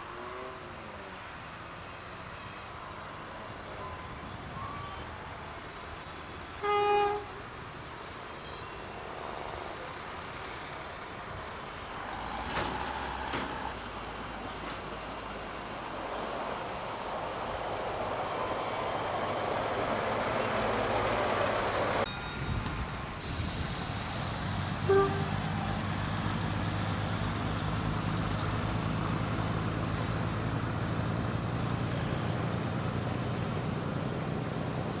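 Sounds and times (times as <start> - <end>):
railcar rumbling past: 0.0 - 35.0
diesel engine idling: 3.0 - 35.0
train horn toot: 6.5 - 7.5, 24.5 - 26.0.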